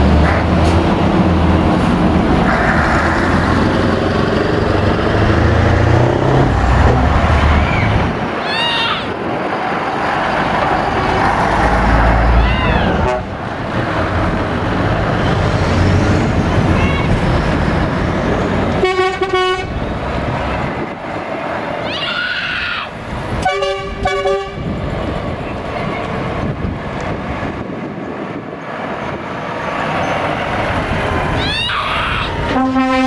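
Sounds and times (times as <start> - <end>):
lorry diesel engines: 0.0 - 33.0
truck horn blasts: 12.9 - 13.4, 18.8 - 19.8, 23.4 - 24.6, 32.5 - 33.0.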